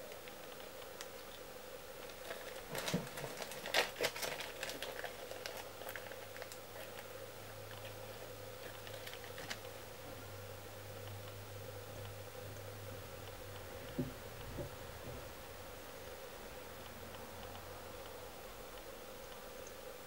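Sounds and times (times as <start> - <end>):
faint ticks and rustles: 0.0 - 10.2, 16.0 - 20.0
plastic packet crinkling: 2.0 - 7.1, 7.7 - 9.8.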